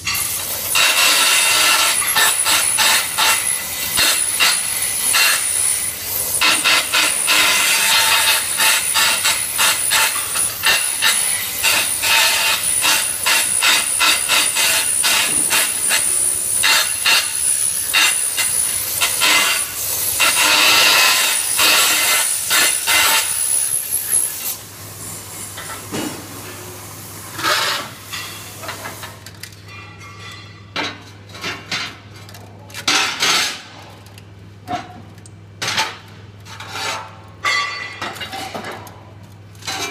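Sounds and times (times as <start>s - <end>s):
welding arc crackling: 0.0s - 24.6s.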